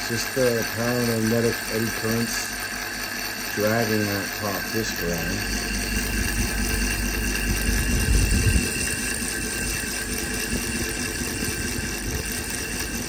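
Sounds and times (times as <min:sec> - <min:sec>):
small motor whine: 0:00.0 - 0:13.0
low rumble: 0:05.4 - 0:10.6.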